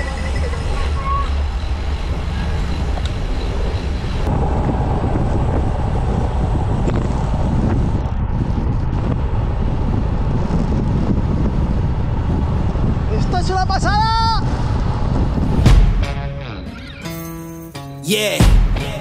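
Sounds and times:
wind buffeting microphone: 0.0s - 16.2s.

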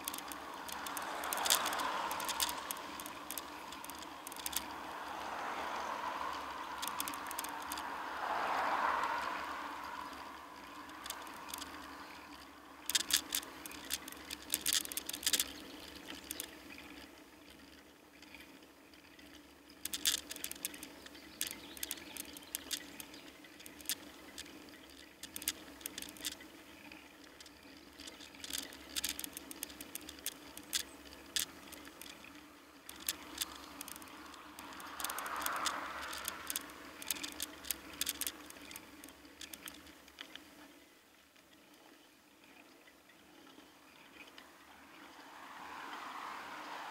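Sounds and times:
car passing: 0.0s - 15.4s, 31.8s - 39.8s, 44.4s - 46.9s
tyre and road hum: 0.0s - 40.8s, 41.5s - 46.9s
bicycle clicking and rattling: 0.0s - 46.9s.

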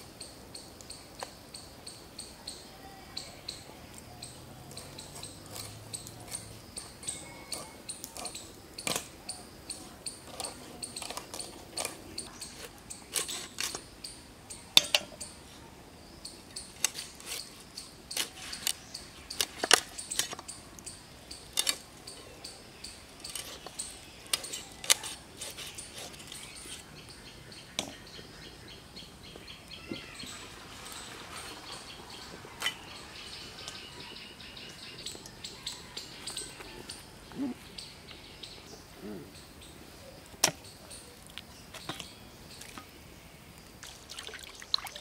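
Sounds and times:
faint birds chirping: 0.0s - 45.0s
knife scraping fish scales: 16.8s - 18.8s, 24.3s - 26.8s.

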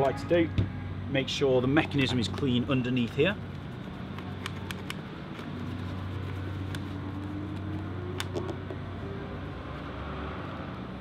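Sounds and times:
helmet visor clicks and taps: 4.1s - 5.5s, 7.5s - 8.8s.

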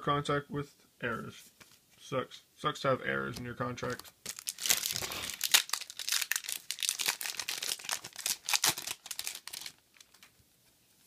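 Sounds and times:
foil wrapper crinkling and tearing: 4.2s - 10.3s.

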